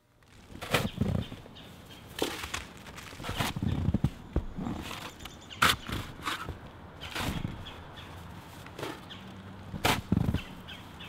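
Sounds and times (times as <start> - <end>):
footsteps crunching in snow: 0.2 - 5.2
snow shovel scraping snow: 2.2 - 7.6.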